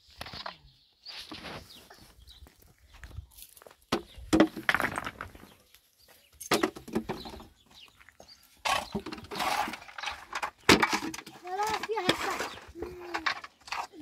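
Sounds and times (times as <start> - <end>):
rough noise: 8.6 - 14.0.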